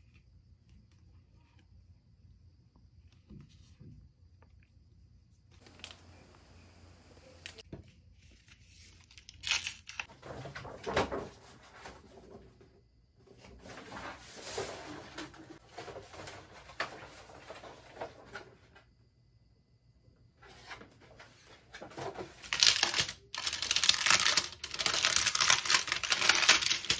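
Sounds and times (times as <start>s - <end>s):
paper poster rustling: 5.6s - 12.4s, 13.4s - 18.8s, 20.4s - 26.9s.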